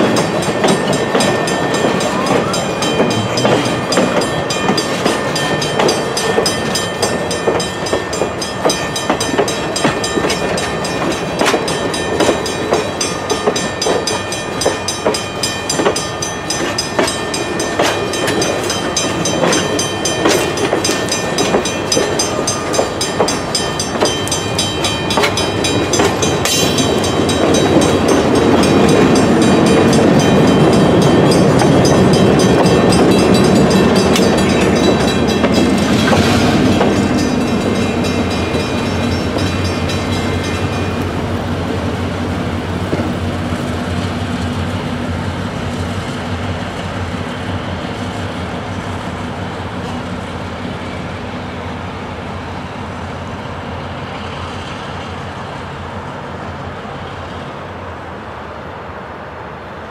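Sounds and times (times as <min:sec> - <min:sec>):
metallic ringing of wheels: 0:00.0 - 0:41.1
train wheels clicking over rail joints: 0:00.0 - 0:44.4
diesel locomotive: 0:00.0 - 0:59.9.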